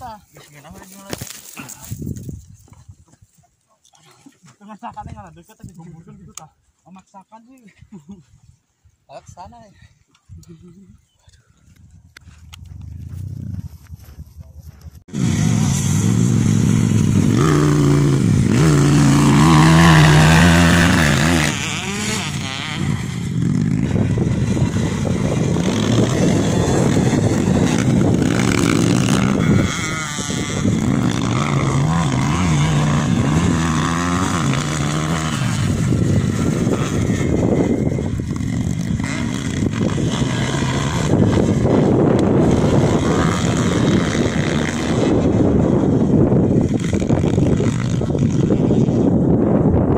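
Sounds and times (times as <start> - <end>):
dirt bike engines revving: 15.0 - 49.9.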